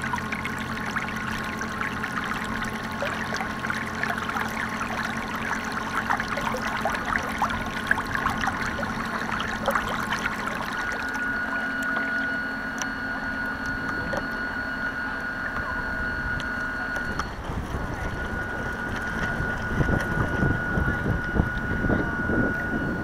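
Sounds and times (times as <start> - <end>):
water splashing: 0.0 - 12.2
wind on microphone: 17.4 - 23.0.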